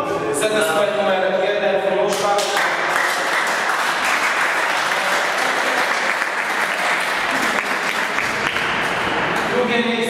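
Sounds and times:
people clapping: 0:02.1 - 0:09.9.

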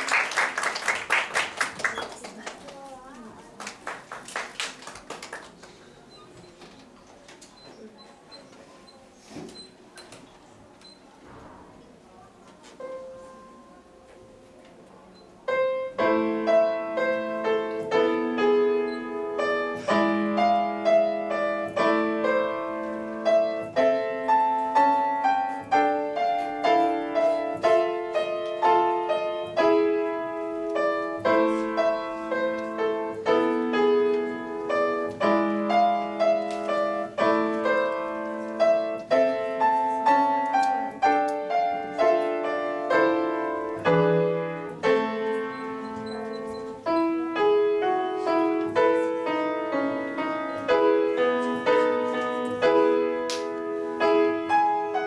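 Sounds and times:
grand piano piece: 0:11.4 - 0:14.6, 0:15.4 - 0:55.0.

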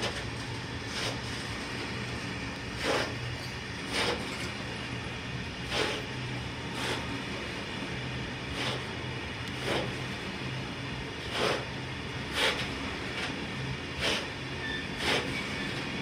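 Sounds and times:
train wheels clacking over rail joint: 0:00.0 - 0:01.9, 0:02.6 - 0:04.8, 0:05.6 - 0:07.5, 0:08.4 - 0:10.2, 0:11.2 - 0:16.0
low train rumble: 0:00.0 - 0:16.0.

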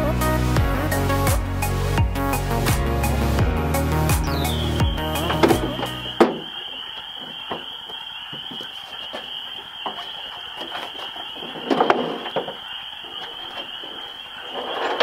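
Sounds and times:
metal clanks: 0:14.4 - 0:15.0.

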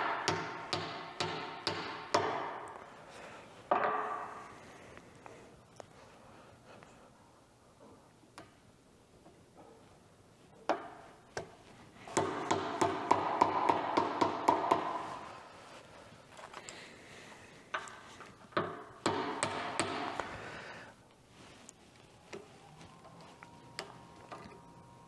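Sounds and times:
hammer tapping metal: 0:00.0 - 0:02.8, 0:12.1 - 0:15.0, 0:18.6 - 0:20.3.

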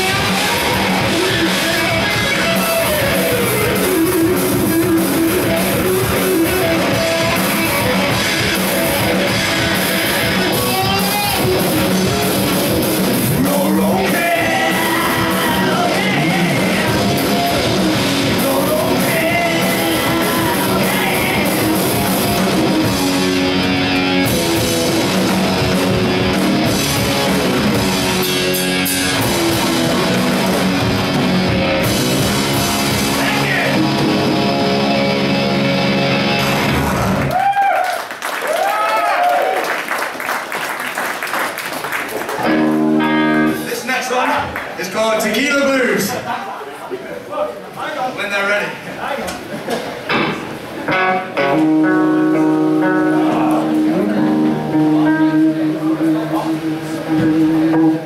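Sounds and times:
live rock band playing: 0:00.0 - 0:37.5, 0:41.9 - 0:44.7, 0:49.4 - 0:58.0
person singing: 0:13.3 - 0:22.1.

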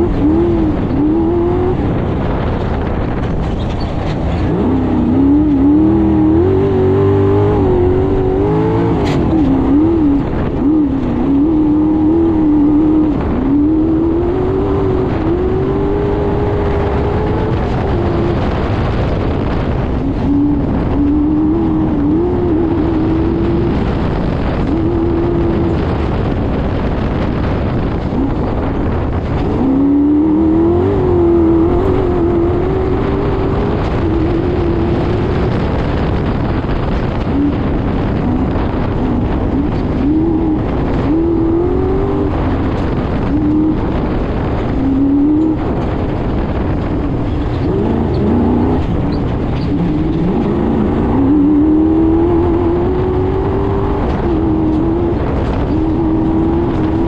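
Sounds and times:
race car engine revving: 0:00.0 - 0:57.0
steady rush of noise: 0:00.0 - 0:57.0.

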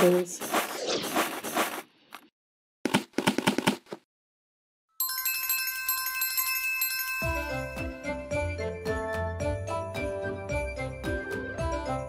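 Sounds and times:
quick run of clicks: 0:02.9 - 0:04.0
bright sustained bell tones: 0:05.0 - 0:08.3.

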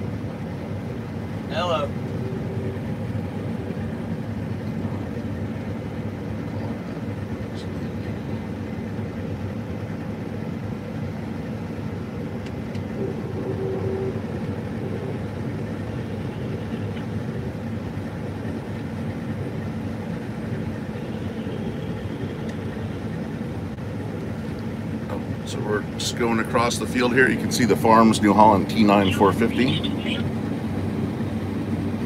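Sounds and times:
combine harvester humming: 0:00.0 - 0:32.0.

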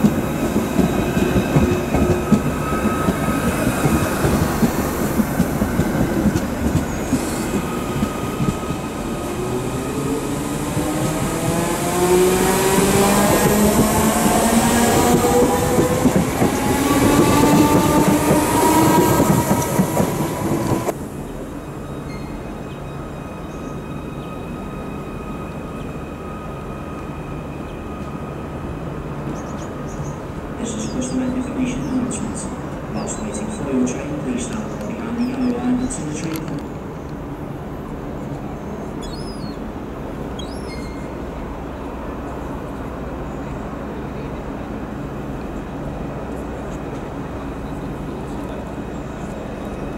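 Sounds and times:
electric train running slowly: 0:00.0 - 0:49.9
bird chirps: 0:21.8 - 0:24.6, 0:38.6 - 0:39.6, 0:40.3 - 0:41.2.

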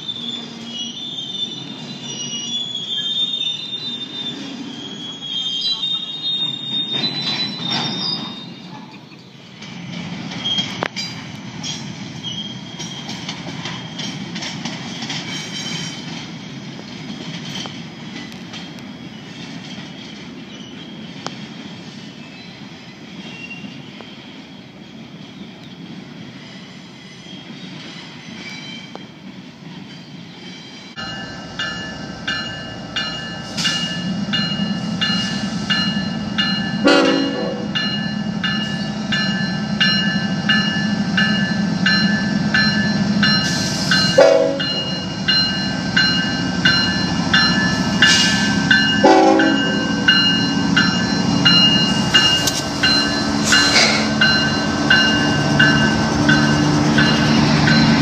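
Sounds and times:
freight train wheels squealing: 0:00.0 - 0:58.0
diesel locomotive engine rumble: 0:30.9 - 0:58.0
high ringing tones: 0:31.0 - 0:58.0.

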